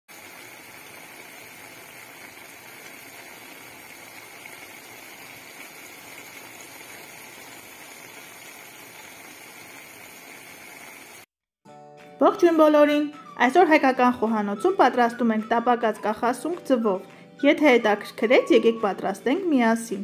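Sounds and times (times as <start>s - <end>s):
food sizzling in a pan: 0.1s - 11.3s.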